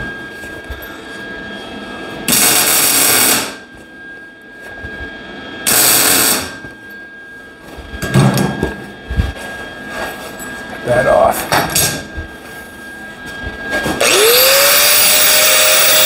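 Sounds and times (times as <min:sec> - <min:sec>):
welding arc crackle: 0:02.3 - 0:03.6, 0:05.7 - 0:06.6.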